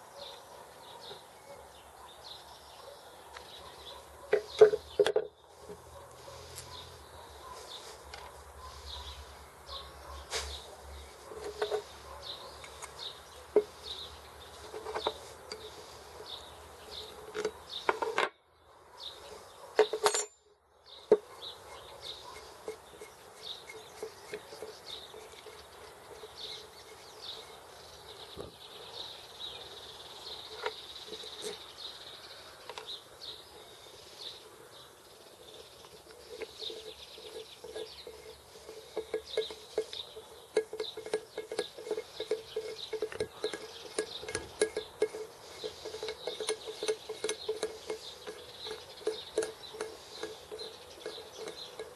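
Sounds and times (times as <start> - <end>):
light metallic clicks and clinks: 19.8 - 27.7, 35.8 - 51.9.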